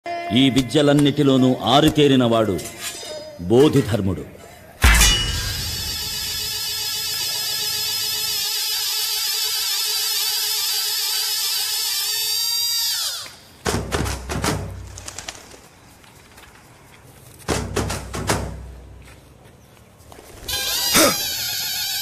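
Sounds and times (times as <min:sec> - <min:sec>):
warbling electronic tone: 0:04.8 - 0:06.8.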